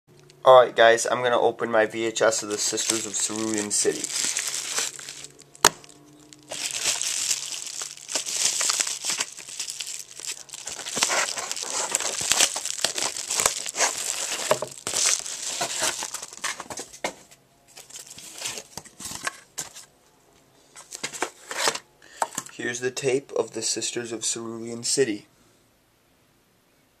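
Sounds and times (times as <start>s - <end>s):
paper crinkling and tearing: 2.3s - 17.1s, 17.7s - 19.9s, 20.8s - 21.8s.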